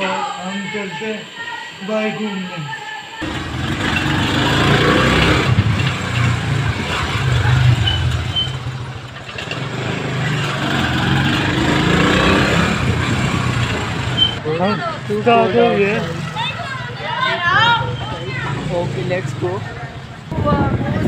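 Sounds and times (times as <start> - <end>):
motorcycle engine running: 3.2 - 14.4.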